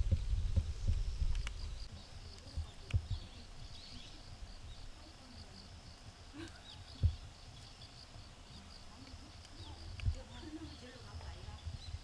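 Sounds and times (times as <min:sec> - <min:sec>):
dull low thump: 0:00.0 - 0:01.6
bird chirps: 0:00.0 - 0:05.7, 0:06.3 - 0:12.0
crickets chirping: 0:00.0 - 0:12.0.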